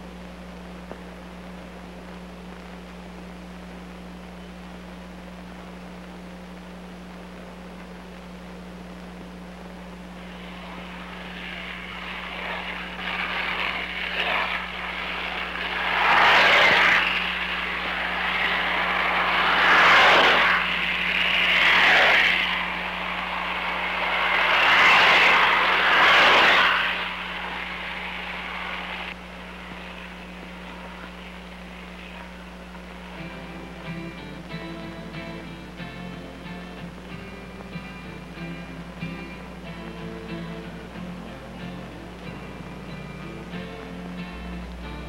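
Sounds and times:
skateboard wheels rolling on pavement: 10.1s - 45.0s.

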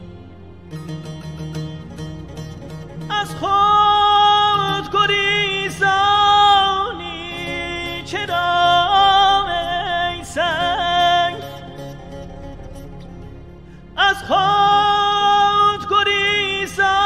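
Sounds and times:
soft low accompaniment: 0.0s - 17.0s
person singing long notes: 3.0s - 13.0s, 13.6s - 17.0s.

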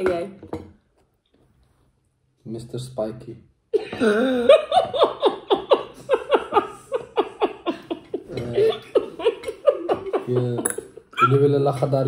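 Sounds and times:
woman laughing: 3.8s - 11.3s.

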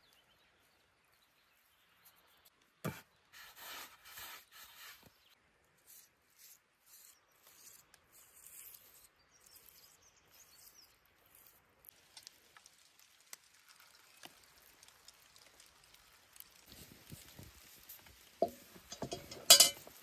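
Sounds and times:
soft brushing strokes on dough: 1.5s - 20.0s
seeds ticking onto dough: 6.4s - 20.0s.

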